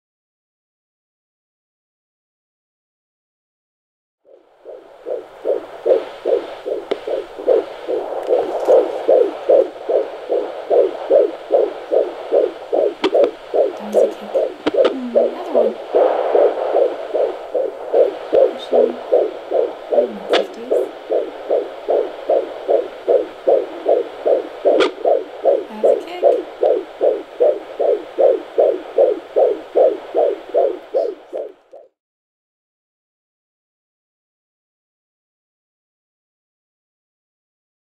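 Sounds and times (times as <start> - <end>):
fast whooshing heartbeat pulses: 4.3 - 31.9.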